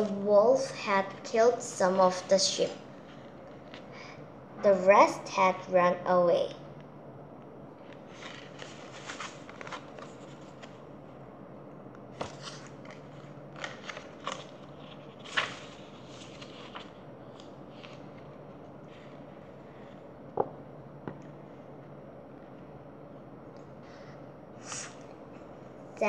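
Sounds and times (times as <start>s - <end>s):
faint steady hum: 0.0s - 26.0s
book pages rustling and crackling: 2.0s - 4.0s, 7.8s - 11.0s, 12.1s - 20.0s.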